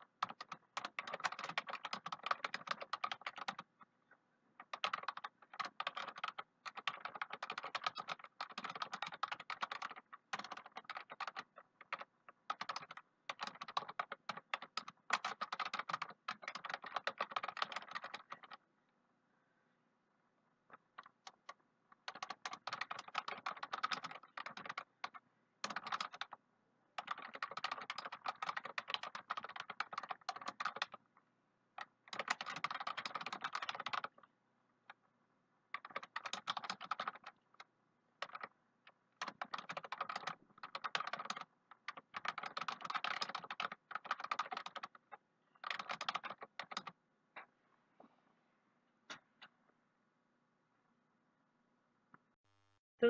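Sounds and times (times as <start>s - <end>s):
computer keyboard typing: 0.0s - 3.7s, 4.6s - 18.6s, 20.7s - 26.4s, 27.0s - 31.0s, 31.8s - 34.2s, 35.7s - 47.0s.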